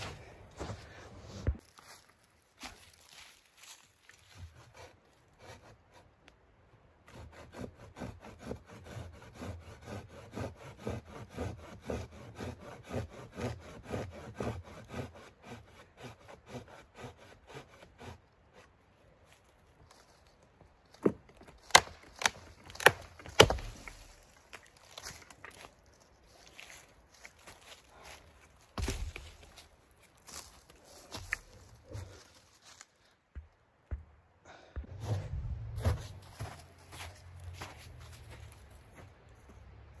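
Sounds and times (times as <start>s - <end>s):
hand saw cutting branch: 4.4s - 6.1s, 7.1s - 18.8s, 21.7s - 25.6s
branch snapping cracks: 21.6s - 24.0s.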